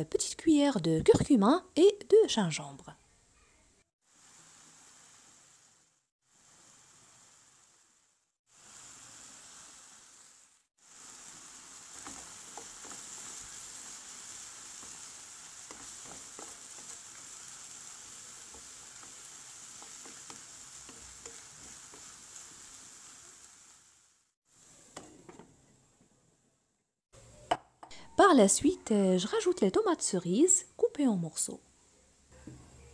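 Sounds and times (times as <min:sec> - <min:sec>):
chicken and onion sizzling in oil: 0:04.0 - 0:26.2
wooden spatula scraping and tapping pan: 0:12.0 - 0:13.5, 0:14.7 - 0:17.3, 0:18.4 - 0:22.6, 0:24.9 - 0:26.1.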